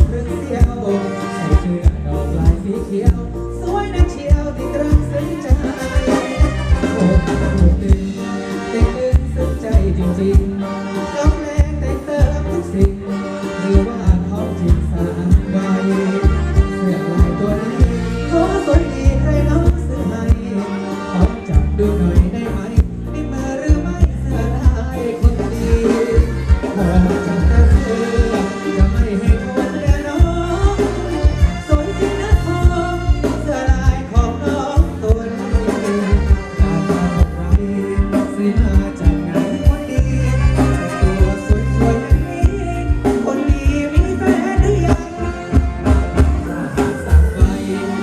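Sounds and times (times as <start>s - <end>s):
live band music: 0.0s - 48.0s
person singing: 0.0s - 48.0s
drum beat: 4.0s - 10.6s, 24.0s - 48.0s.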